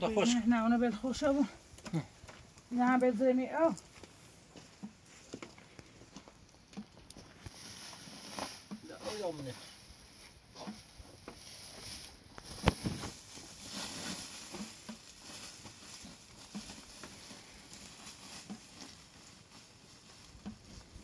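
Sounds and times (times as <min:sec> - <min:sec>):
small taps and scuffs: 0:03.7 - 0:09.3, 0:10.6 - 0:21.0
plastic sack rustling: 0:07.2 - 0:21.0.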